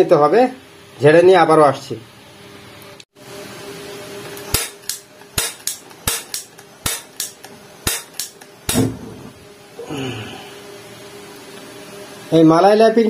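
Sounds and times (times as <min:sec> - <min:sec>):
sharp clicks or knocks: 0:04.5 - 0:09.3.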